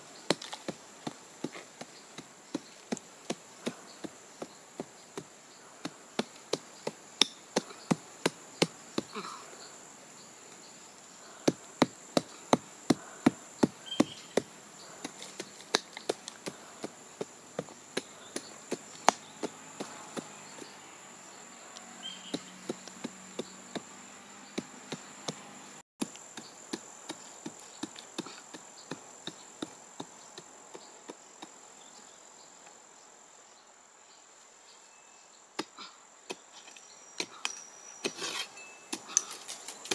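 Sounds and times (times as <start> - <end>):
high insect buzz: 0.0 - 39.9
hand pick striking soil: 4.4 - 9.2, 11.4 - 20.8, 22.1 - 24.0, 24.6 - 29.8, 35.6 - 39.9.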